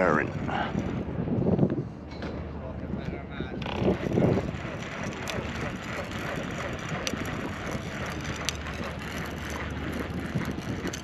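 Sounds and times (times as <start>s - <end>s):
fishing reel whirring: 3.6s - 11.0s.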